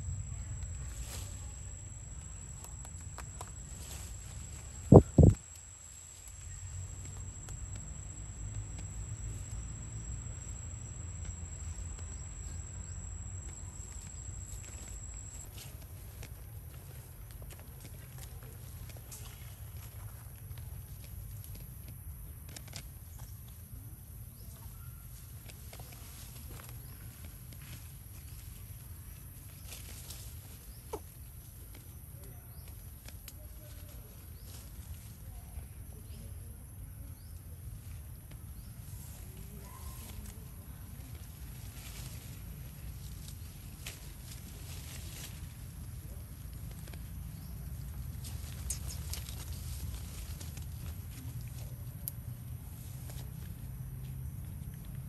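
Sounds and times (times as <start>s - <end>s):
high-pitched insect drone: 0.0s - 15.5s
low steady rumble: 0.0s - 15.5s
faint clicks: 0.1s - 15.5s.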